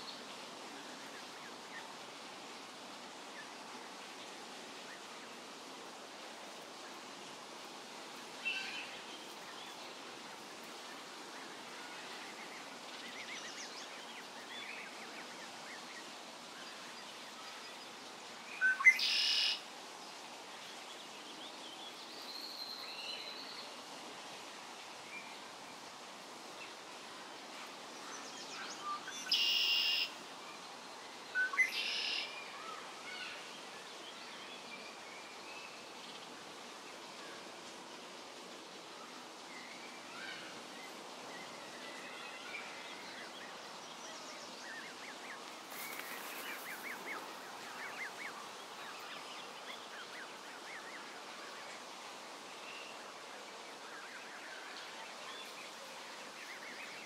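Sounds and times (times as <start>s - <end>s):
steady background hiss: 0.0s - 57.0s
faint bird chirps: 28.1s - 30.2s, 41.5s - 51.8s
birds calling: 44.8s - 50.9s.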